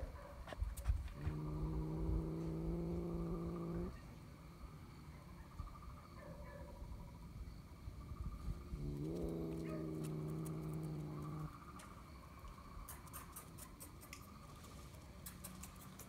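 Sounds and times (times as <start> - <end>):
cat growling: 1.2 - 3.9, 8.7 - 11.6.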